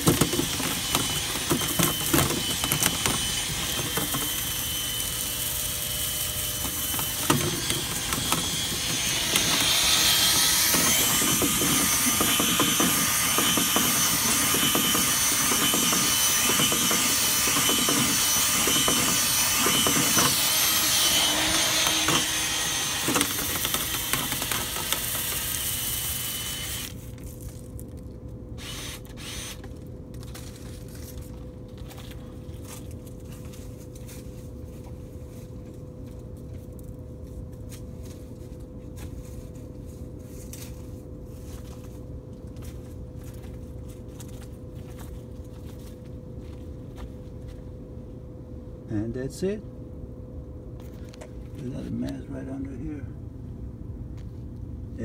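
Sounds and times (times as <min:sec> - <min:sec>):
whirring and scraping: 0:00.0 - 0:27.5
drill spinning brush in duct: 0:00.0 - 0:27.6, 0:28.6 - 0:31.3
steady hum: 0:00.0 - 0:55.0.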